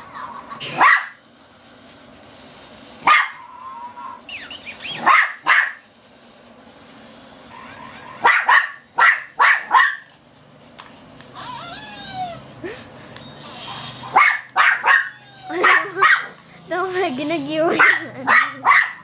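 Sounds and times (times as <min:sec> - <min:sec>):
small dog barking: 0:00.7 - 0:01.2, 0:03.0 - 0:03.4, 0:05.0 - 0:05.8, 0:08.2 - 0:10.1, 0:14.1 - 0:16.4, 0:17.7 - 0:19.0.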